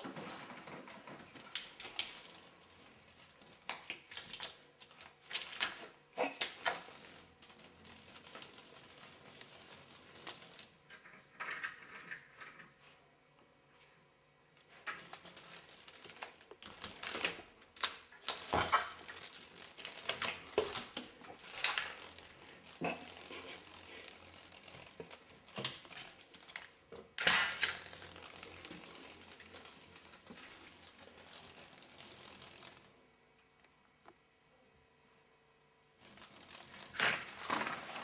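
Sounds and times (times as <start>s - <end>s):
blinds rustling: 14.6s - 33.0s, 36.0s - 38.0s
window blinds rattling: 14.7s - 32.9s, 36.0s - 38.0s.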